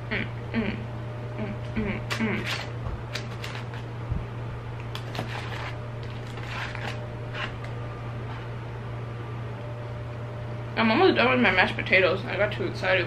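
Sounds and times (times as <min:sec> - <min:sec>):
steady low hum: 0:00.0 - 0:13.0
fork scraping food in a box: 0:02.3 - 0:03.9, 0:05.0 - 0:08.5.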